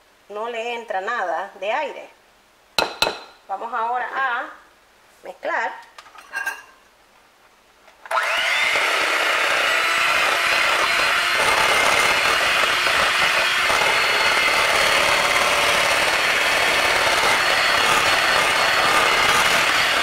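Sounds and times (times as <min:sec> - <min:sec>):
electric hand mixer running: 0:08.1 - 0:20.0.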